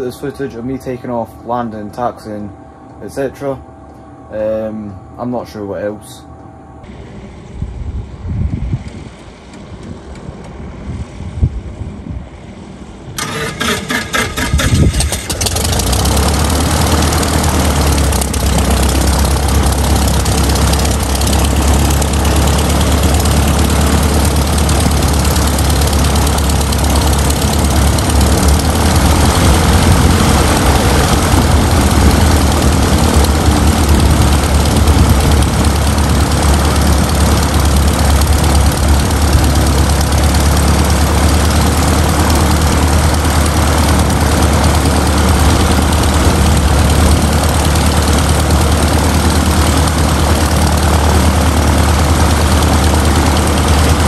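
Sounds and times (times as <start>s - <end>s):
aircraft engine idling: 0.0s - 54.0s
starter turning propeller: 13.2s - 54.0s.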